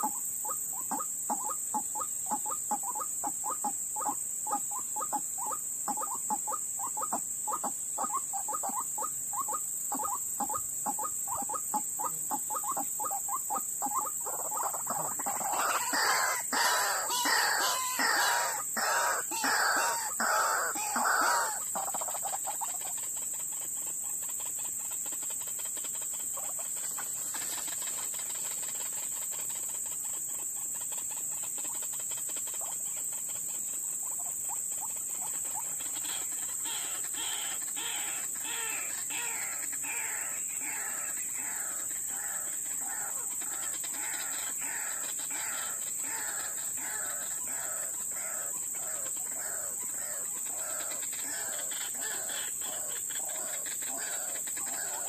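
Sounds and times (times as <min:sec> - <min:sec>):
waterhen calling: 0:00.0 - 0:22.9, 0:33.9 - 0:55.0.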